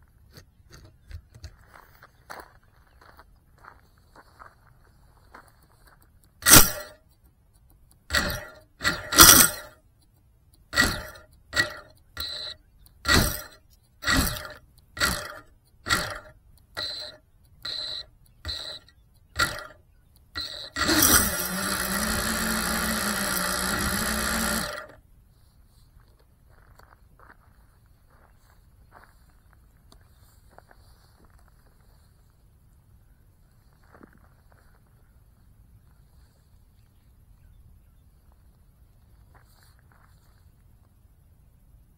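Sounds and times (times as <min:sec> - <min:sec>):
quadcopter motors humming: 0:06.4 - 0:07.0, 0:08.1 - 0:09.8, 0:10.7 - 0:25.0.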